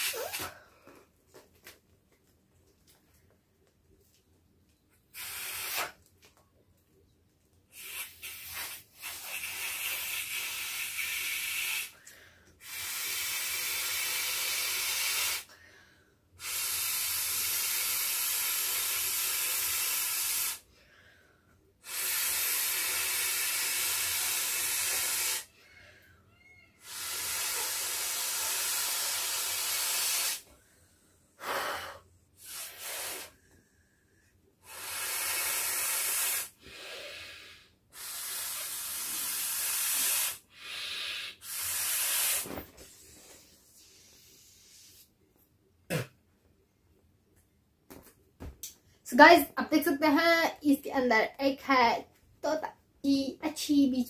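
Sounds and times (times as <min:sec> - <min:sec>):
breaths blown into beach ball valve: 0:00.0 - 0:00.6, 0:05.1 - 0:06.0, 0:07.7 - 0:12.0, 0:12.6 - 0:15.5, 0:16.4 - 0:20.6, 0:21.8 - 0:25.8, 0:26.8 - 0:30.5, 0:31.4 - 0:33.5, 0:34.6 - 0:45.1.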